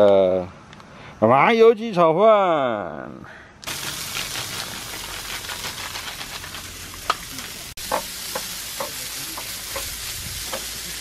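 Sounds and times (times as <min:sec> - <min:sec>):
rice sizzling in frying pan: 0:03.6 - 0:11.0.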